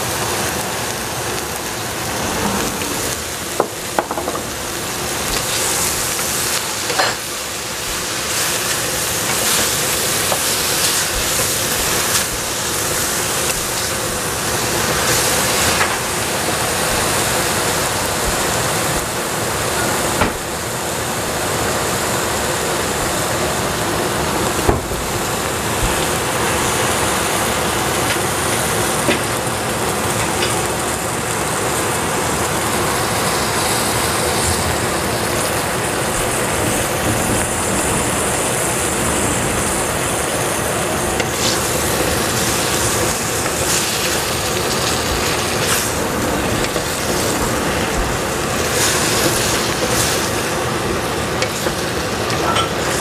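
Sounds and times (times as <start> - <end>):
eggplant sizzling in oil: 0.0 - 53.0.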